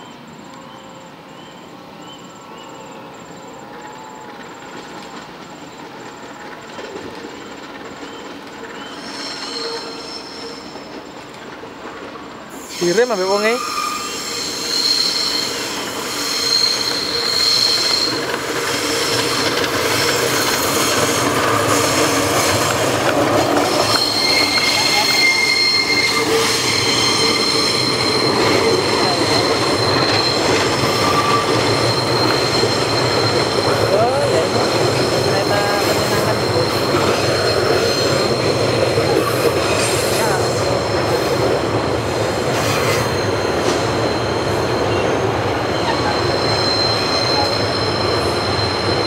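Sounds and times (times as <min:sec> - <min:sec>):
train carriages rumbling on rails: 0:00.0 - 0:49.0
train wheels squealing: 0:00.0 - 0:49.0.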